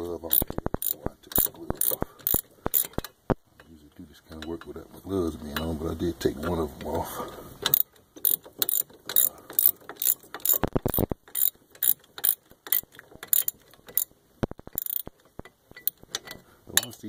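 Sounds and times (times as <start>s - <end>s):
ratchet clicking: 0.3s - 3.2s, 7.6s - 16.9s.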